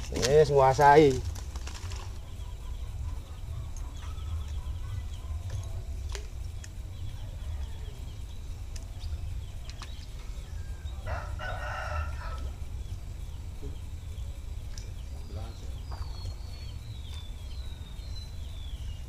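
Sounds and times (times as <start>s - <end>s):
small birds chirping: 0.0s - 19.0s
steady low rumble: 0.0s - 19.0s
rooster crowing: 10.4s - 12.8s.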